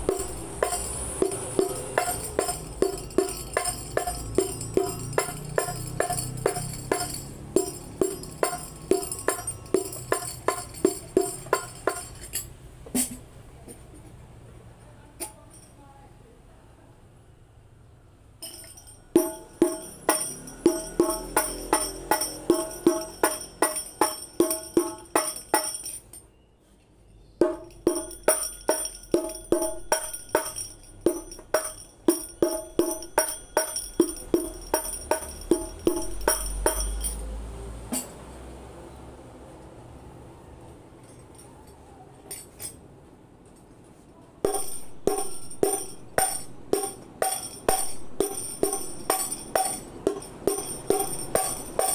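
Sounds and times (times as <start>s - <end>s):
frame drums struck by hand: 0.0s - 12.3s, 19.2s - 25.9s, 27.4s - 37.0s, 44.5s - 51.9s.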